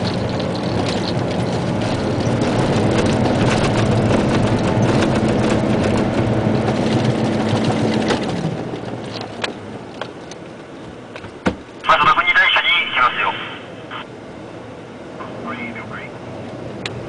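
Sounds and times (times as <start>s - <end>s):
cab rattling and knocking: 0.0s - 10.2s
diesel truck engine droning: 0.0s - 17.0s.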